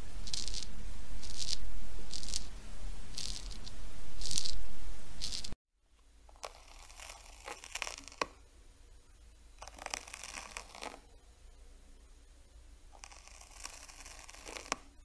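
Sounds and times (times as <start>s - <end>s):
snail eating crackling and rasping: 0.1s - 4.6s, 5.2s - 8.4s, 9.5s - 11.1s, 12.9s - 15.0s.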